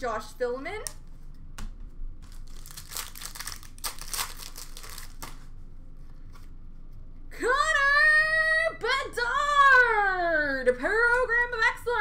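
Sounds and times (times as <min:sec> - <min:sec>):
wrapper crinkling as torn open: 0:02.2 - 0:05.5.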